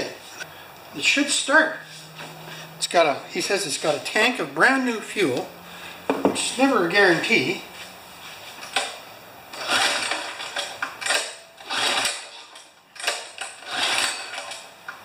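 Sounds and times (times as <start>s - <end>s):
pull-starter rope whirring: 8.6s - 14.8s
engine cranking: 8.7s - 14.8s.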